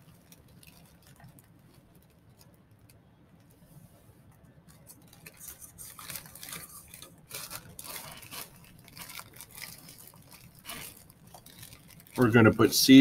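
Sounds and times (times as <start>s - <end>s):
plastic bag crinkling: 0.0s - 3.6s, 4.3s - 13.0s
soil pattering into paper cup: 4.7s - 13.0s.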